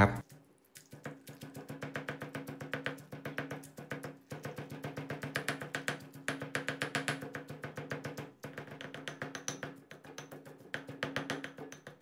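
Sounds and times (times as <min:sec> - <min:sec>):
stone pestle pounding in mortar: 0:01.0 - 0:12.0.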